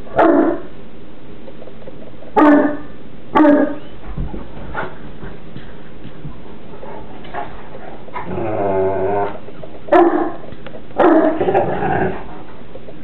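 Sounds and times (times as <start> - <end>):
dogs barking: 0.0 - 0.8, 2.2 - 4.0, 9.3 - 12.2.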